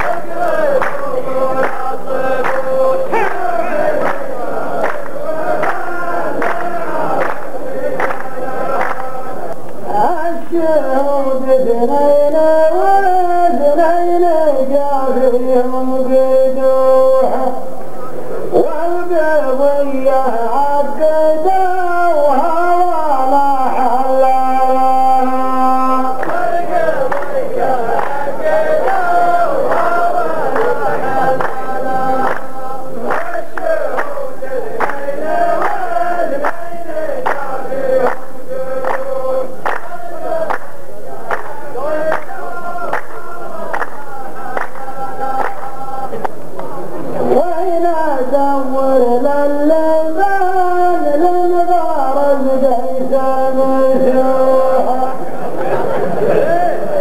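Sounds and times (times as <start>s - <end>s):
man chanting: 0.0s - 4.2s, 8.9s - 40.5s, 41.3s - 57.0s
hands clapping in steady beat: 0.0s - 9.8s, 26.2s - 46.8s.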